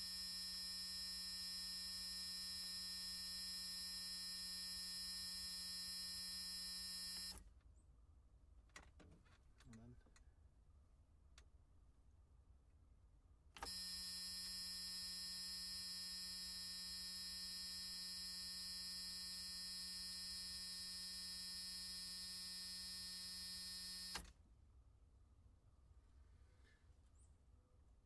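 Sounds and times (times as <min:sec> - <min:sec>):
harsh electric buzz: 0:00.0 - 0:07.4, 0:13.6 - 0:24.2.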